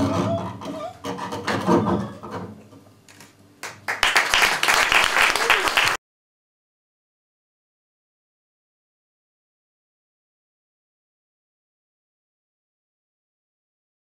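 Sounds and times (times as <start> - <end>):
audience applauding: 3.6 - 6.0.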